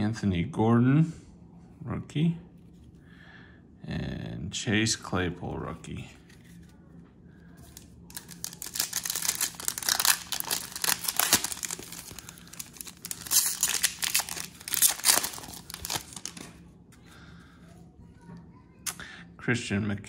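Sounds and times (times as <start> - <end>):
foil wrapper crinkling and tearing: 7.6 - 16.6.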